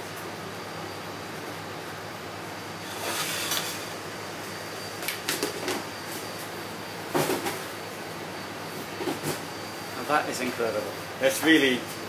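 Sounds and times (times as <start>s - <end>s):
kitchen background hiss: 2.5s - 12.0s.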